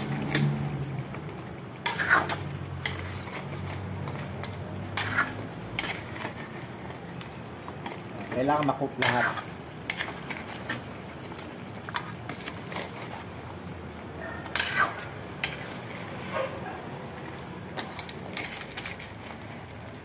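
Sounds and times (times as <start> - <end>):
metal spatula scraping a wok: 1.7 - 6.9, 7.8 - 11.0, 14.4 - 19.5.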